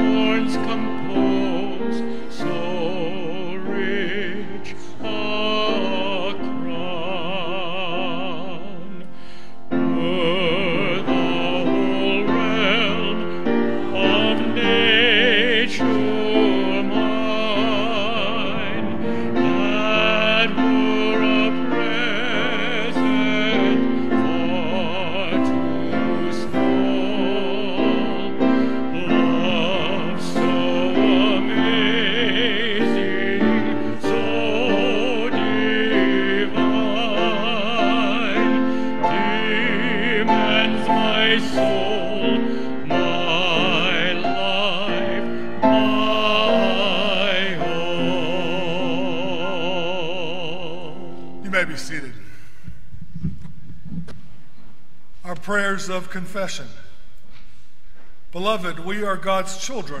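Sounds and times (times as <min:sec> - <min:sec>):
congregation singing a hymn: 0:00.0 - 0:08.8, 0:09.9 - 0:52.0
sustained accompaniment: 0:00.0 - 0:52.9.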